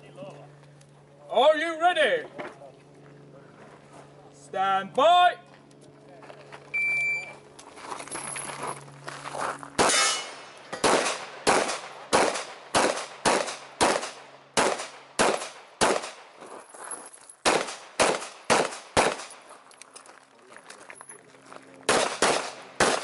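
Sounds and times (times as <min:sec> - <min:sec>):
pistol shots: 0:09.8 - 0:16.3, 0:17.4 - 0:19.4, 0:21.9 - 0:23.0.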